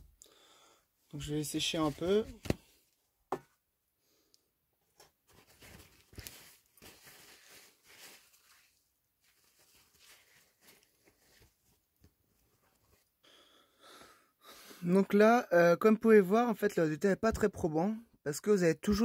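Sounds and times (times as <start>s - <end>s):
paper towel rustling: 1.4s - 2.7s, 5.3s - 13.0s.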